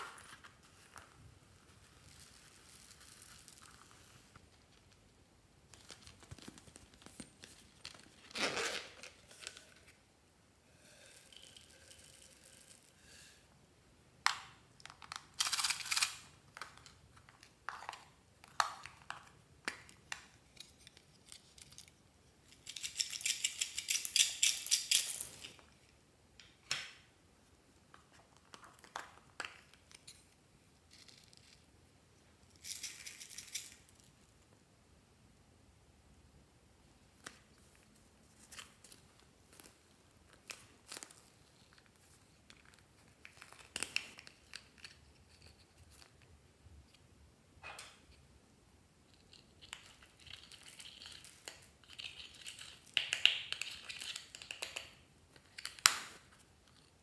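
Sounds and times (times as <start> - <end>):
beads rattling out: 11.0 - 13.0.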